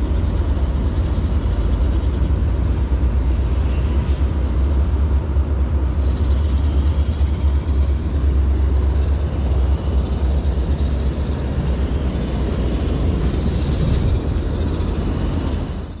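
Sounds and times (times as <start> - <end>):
heavy low rumble: 2.5 - 16.0.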